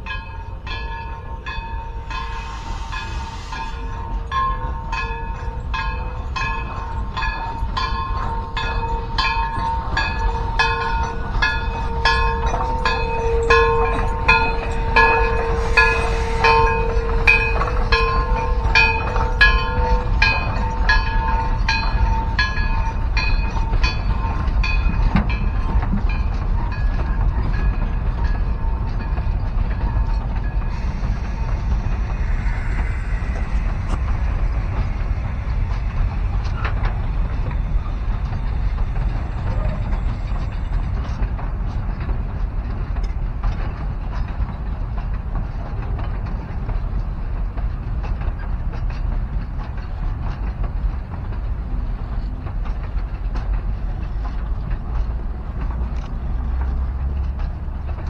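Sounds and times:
steady high squeal: 0:00.0 - 0:44.4
train wheels clicking on rails: 0:00.0 - 0:58.0.

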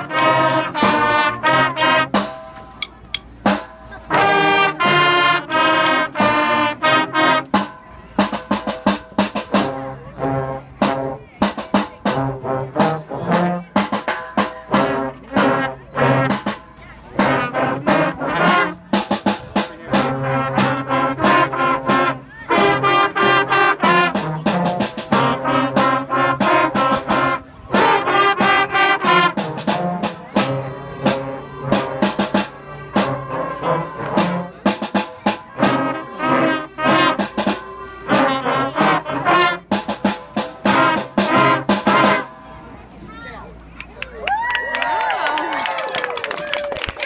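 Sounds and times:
brass band playing: 0:00.0 - 0:42.8
drum strokes: 0:02.1 - 0:06.5, 0:07.5 - 0:09.8, 0:24.1 - 0:42.4.

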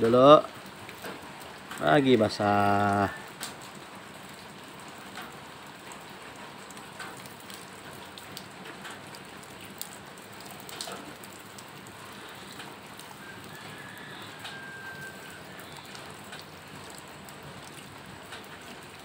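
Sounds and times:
water dripping: 0:00.0 - 0:19.0
water pouring onto soil: 0:07.0 - 0:19.0.

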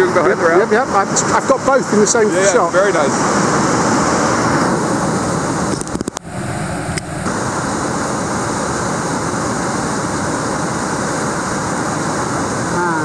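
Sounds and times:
roar of river rapid: 0:00.0 - 0:13.0.

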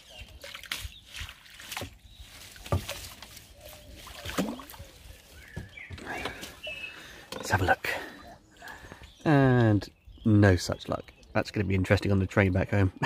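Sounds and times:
water splashing and sloshing: 0:00.0 - 0:09.1
net swishing through water: 0:00.4 - 0:05.4.

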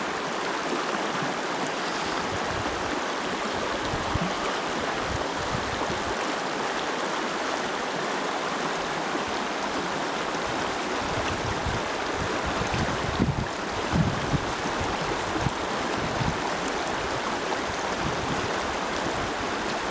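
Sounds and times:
river water flowing: 0:00.0 - 0:19.9.

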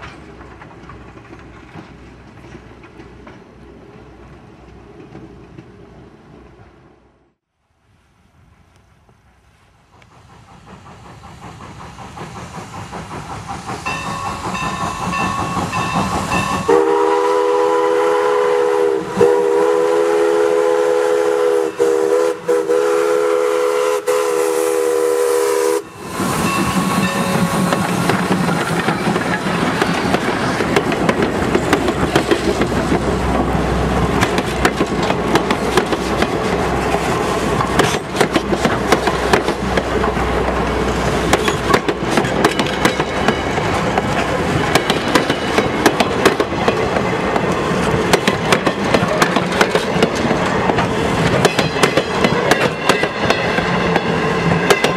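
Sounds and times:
train wheels clicking on rail joints: 0:00.0 - 0:06.8, 0:08.6 - 0:54.9
train low rumble: 0:00.0 - 0:54.9
steam locomotive chime whistle: 0:13.8 - 0:29.6.

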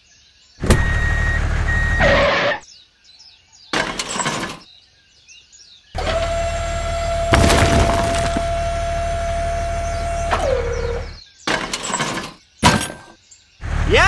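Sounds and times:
clattering bursts: 0:07.0 - 0:09.1, 0:11.5 - 0:13.2
wood breaking and splintering: 0:07.1 - 0:08.9.

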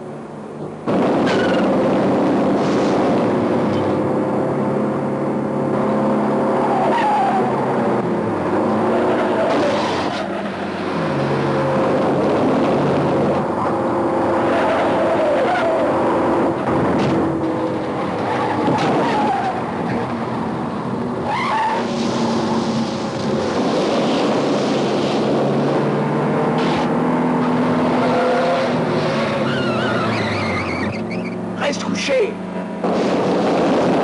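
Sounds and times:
engines revving hard: 0:00.7 - 0:34.0
tyres squealing: 0:21.2 - 0:22.0, 0:28.0 - 0:32.1.

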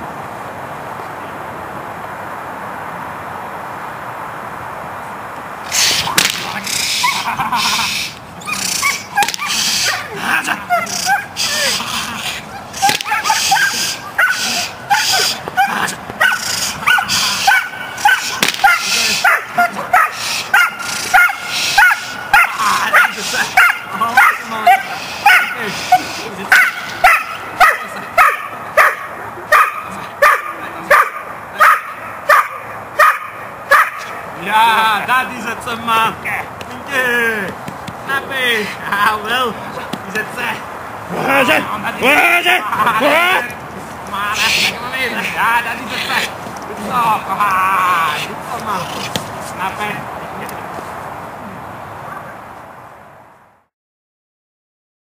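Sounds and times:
outdoor background noise: 0:00.0 - 0:53.7
hissing swishing rushes: 0:03.6 - 0:27.6
whip crack: 0:05.7 - 0:06.6, 0:09.2 - 0:09.7, 0:12.8 - 0:13.3, 0:18.2 - 0:19.0
dog barking: 0:08.5 - 0:10.1, 0:10.7 - 0:11.8, 0:12.8 - 0:34.2.

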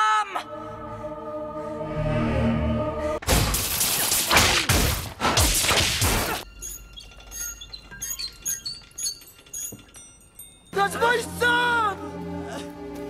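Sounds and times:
chandelier crystals tinkling: 0:06.4 - 0:11.2.

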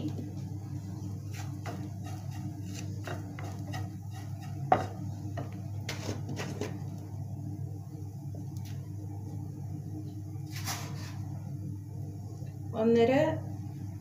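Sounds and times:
spatula scraping in frying pan: 0:01.2 - 0:06.8
knock against pan: 0:04.7 - 0:05.6.

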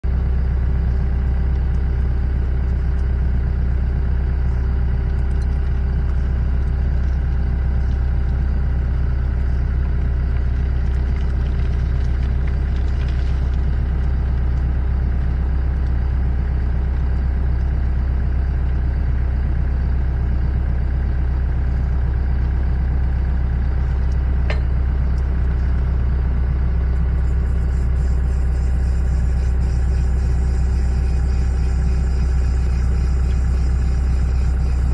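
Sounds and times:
electric motor droning: 0:27.2 - 0:34.9.

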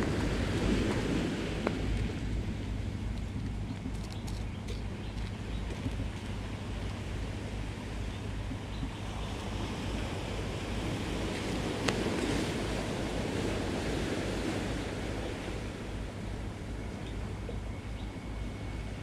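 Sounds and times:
waves on rocky shore: 0:00.0 - 0:04.1, 0:05.4 - 0:17.7
low wind rumble on microphone: 0:00.0 - 0:19.0.

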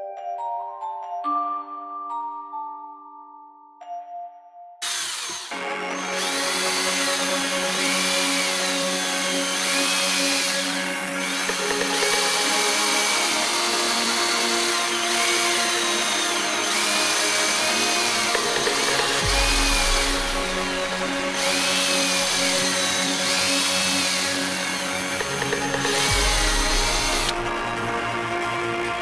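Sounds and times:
power drill boring into wood: 0:04.8 - 0:27.7.

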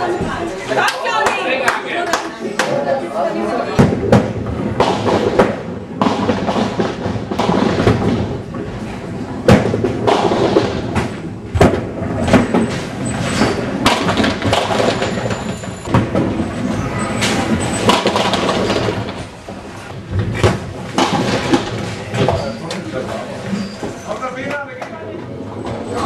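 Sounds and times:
balls rolling rumble: 0:03.3 - 0:26.0
bowling balls thudding on wood: 0:03.7 - 0:22.6
balls crashing into pins: 0:03.7 - 0:24.1.

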